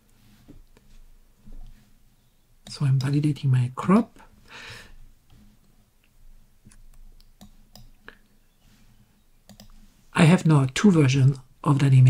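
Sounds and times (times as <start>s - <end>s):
computer mouse clicks: 6.6s - 8.3s, 9.4s - 9.9s.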